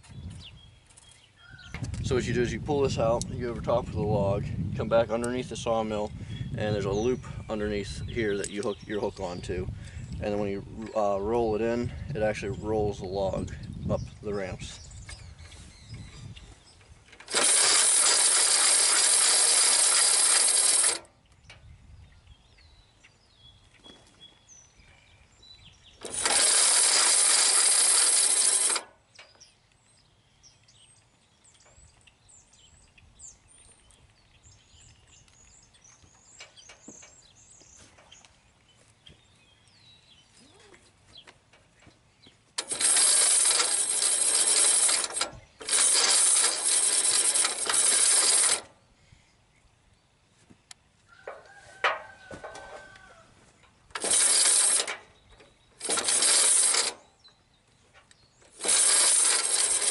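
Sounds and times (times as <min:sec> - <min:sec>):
hand winch free-spooling: 0:17.1 - 0:21.2, 0:26.0 - 0:29.4, 0:42.6 - 0:48.8, 0:53.9 - 0:57.3, 0:58.1 - 0:59.9.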